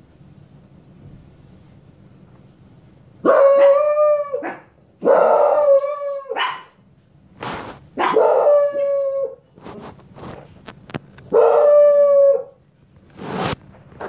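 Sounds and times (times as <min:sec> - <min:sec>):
dog howling: 0:03.3 - 0:06.7, 0:08.1 - 0:09.4, 0:11.4 - 0:12.6
brief rough noise: 0:07.4 - 0:07.9, 0:13.0 - 0:14.0.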